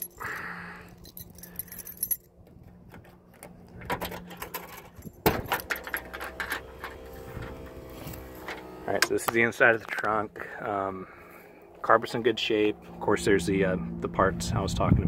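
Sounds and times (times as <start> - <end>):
keys jangling and scraping: 0.0 - 8.6
steady hum: 0.0 - 15.0
trunk latch clunk: 3.8 - 7.6.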